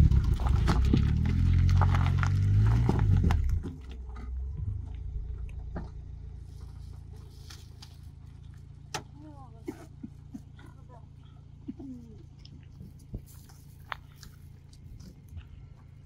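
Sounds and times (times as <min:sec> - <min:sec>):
footsteps crunching on gravel: 0:00.0 - 0:03.8, 0:12.7 - 0:15.8
loud low rumble: 0:00.0 - 0:07.5
steady low hum: 0:02.8 - 0:16.0.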